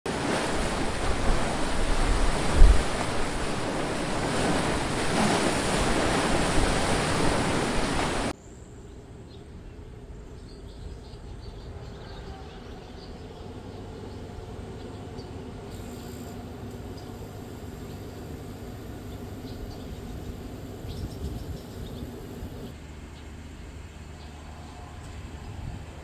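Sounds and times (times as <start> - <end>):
wind buffeting microphone: 0.1 - 8.3, 18.4 - 22.8, 25.2 - 26.0
rushing wind and water: 0.1 - 8.4.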